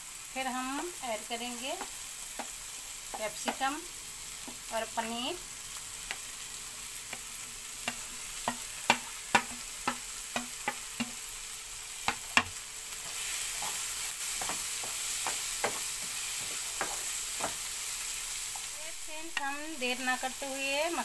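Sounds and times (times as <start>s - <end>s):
frying sizzle: 0.0s - 21.0s
wooden spatula knocking pan: 7.1s - 11.2s, 12.0s - 12.6s, 13.6s - 17.7s.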